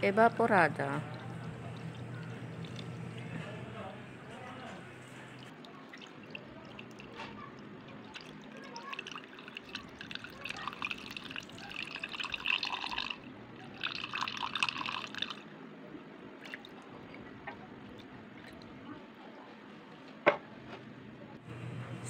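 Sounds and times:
milk trickling into a bowl: 0.9s - 15.5s, 16.4s - 16.9s.

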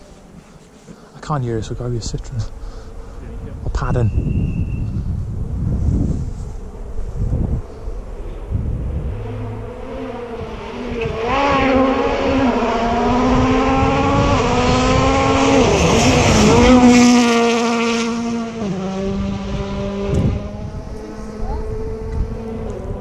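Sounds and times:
rally car engine passing: 5.4s - 23.0s.

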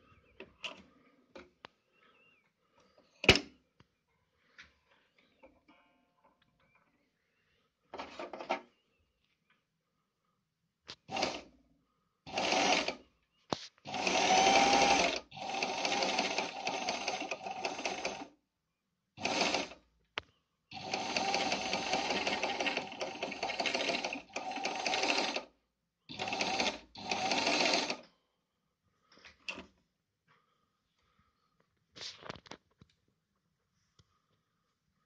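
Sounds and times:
sewing machine stitching: 11.1s - 11.5s, 12.3s - 13.0s, 13.9s - 18.4s, 19.2s - 19.8s, 20.7s - 25.5s, 26.1s - 28.0s.

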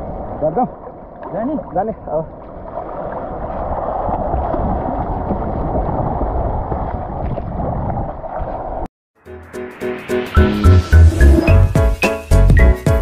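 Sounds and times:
sea water rushing: 0.0s - 8.8s
wind on microphone: 2.4s - 8.9s.

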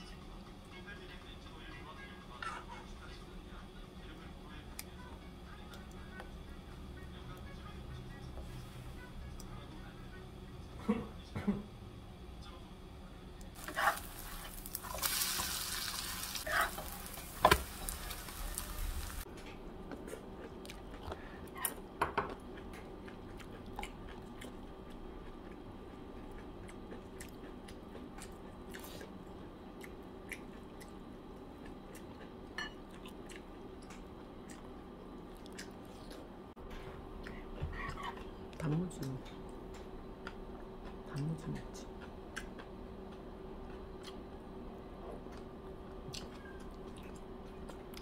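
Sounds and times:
batter sizzling in oil: 13.6s - 19.3s.

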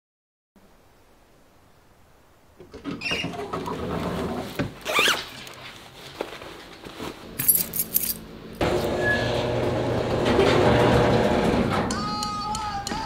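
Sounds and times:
keys jingling: 7.3s - 8.3s
music: 10.6s - 13.0s.

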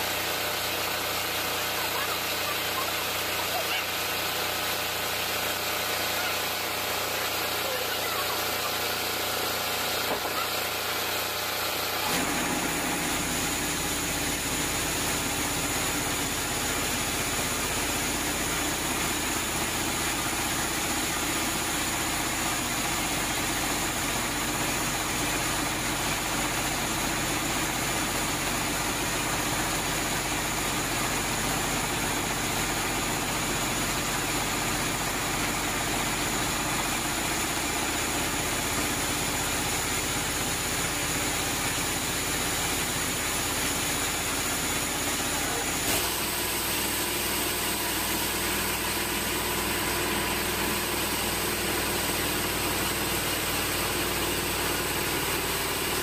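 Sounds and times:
band saw cutting log: 0.9s - 25.2s.

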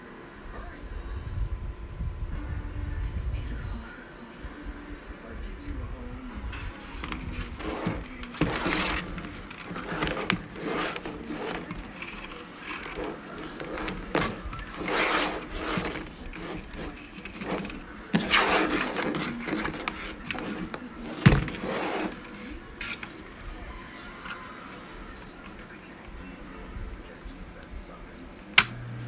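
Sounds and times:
plastic fan scraping on tabletop: 6.5s - 23.3s.

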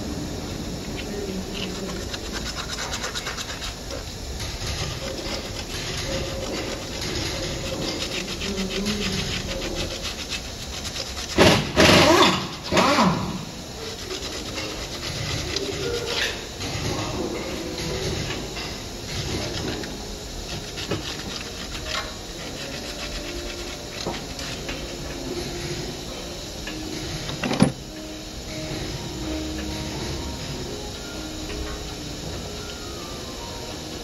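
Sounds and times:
scrubbing and scraping metal: 1.4s - 25.9s.

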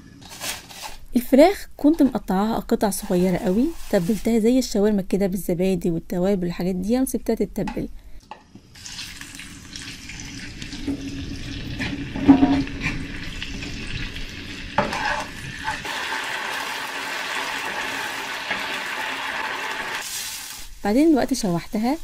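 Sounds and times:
chicken sizzling in a frying pan: 8.7s - 22.0s.

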